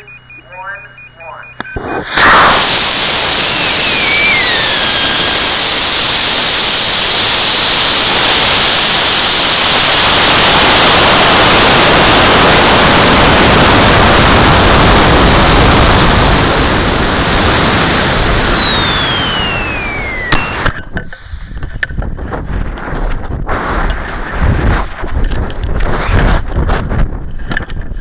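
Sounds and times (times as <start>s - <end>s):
high falling whistle: 1.7s - 8.6s, 11.7s - 20.9s
rush of air: 1.8s - 28.0s.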